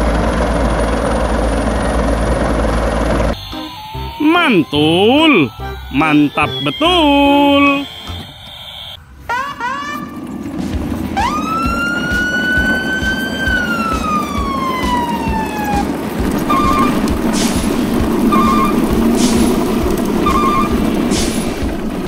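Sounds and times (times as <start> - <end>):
short beeps: 3.4 - 9.0
siren-like tone: 3.4 - 10.0, 11.2 - 21.0
brief hisses: 21.1 - 21.6.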